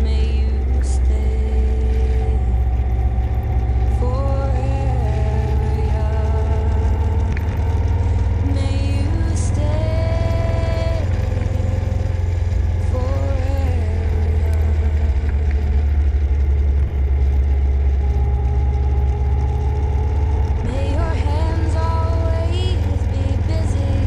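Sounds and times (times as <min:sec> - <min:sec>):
vehicle engine rumble: 0:00.0 - 0:24.0
wind rumble: 0:00.0 - 0:24.0.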